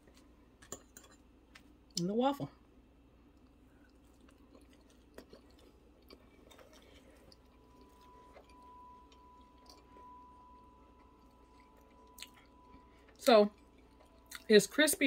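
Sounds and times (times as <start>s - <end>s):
chewing crisp food: 3.2s - 15.0s
faint steady high tone: 7.0s - 15.0s.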